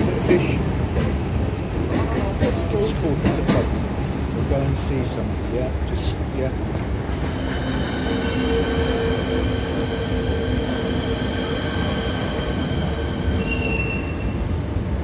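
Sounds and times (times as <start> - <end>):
train rumbling on rails: 0.0 - 15.0
train wheels squealing: 7.3 - 14.6.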